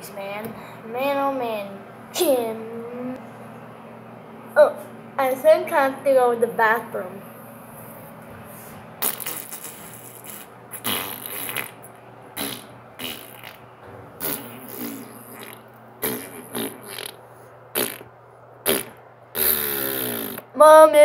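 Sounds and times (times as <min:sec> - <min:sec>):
fart noises: 0:09.0 - 0:13.6, 0:14.2 - 0:20.5.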